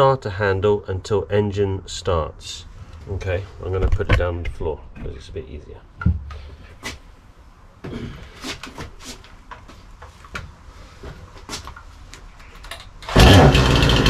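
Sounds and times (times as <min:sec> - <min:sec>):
chainsaw engine running: 0:13.1 - 0:14.0
starter cord being pulled: 0:13.1 - 0:14.0.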